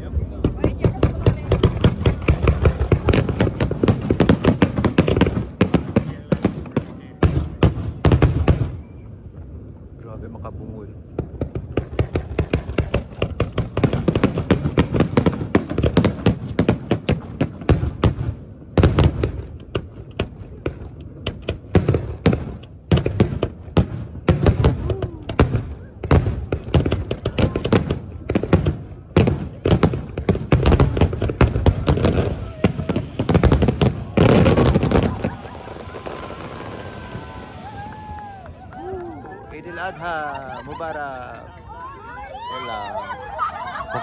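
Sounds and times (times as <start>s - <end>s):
fireworks bangs: 0.0s - 9.7s, 11.0s - 41.4s
heavy firework bang: 11.2s - 38.5s.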